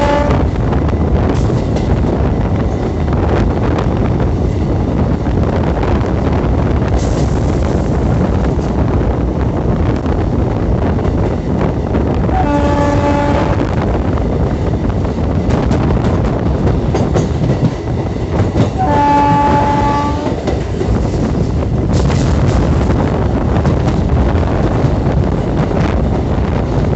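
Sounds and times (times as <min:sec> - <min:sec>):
train horn blasts: 0:00.0 - 0:00.5, 0:12.3 - 0:13.7, 0:18.8 - 0:20.4
train rumble: 0:00.0 - 0:26.9
wind buffeting microphone: 0:00.0 - 0:26.9.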